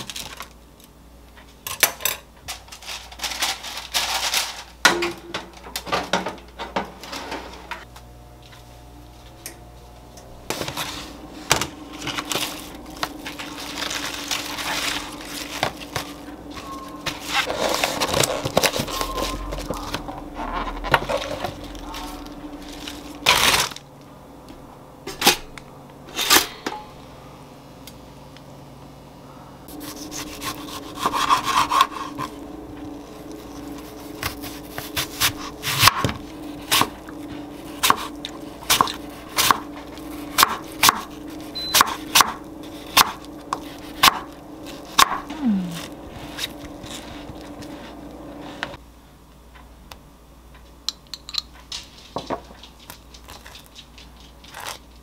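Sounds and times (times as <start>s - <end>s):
lettuce rustling in plastic tub: 11.9s - 23.8s.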